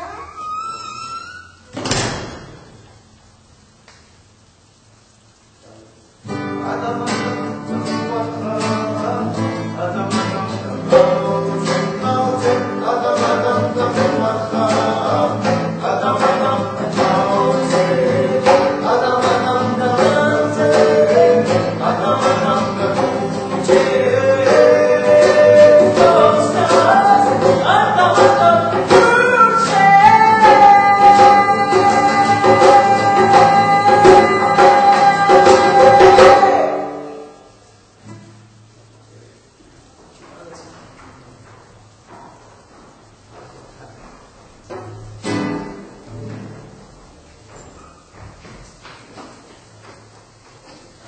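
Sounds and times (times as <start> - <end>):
acoustic guitar strumming: 6.2 - 38.8, 44.7 - 47.2
men singing: 6.6 - 37.3
hand drum beat: 10.8 - 37.1.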